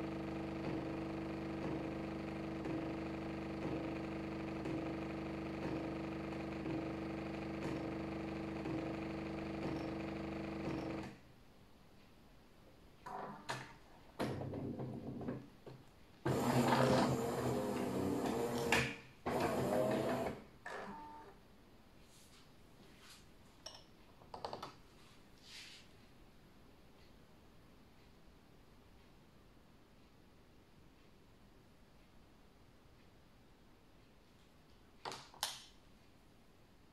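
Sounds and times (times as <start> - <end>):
espresso machine pump running: 0.0 - 11.1, 16.2 - 21.2
machine running mechanically: 0.0 - 11.1, 16.2 - 20.4.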